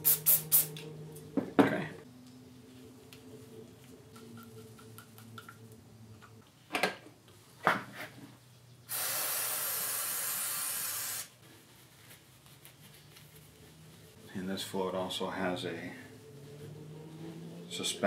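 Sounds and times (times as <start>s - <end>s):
aerosol spray hiss: 0.0s - 0.8s, 8.9s - 11.4s.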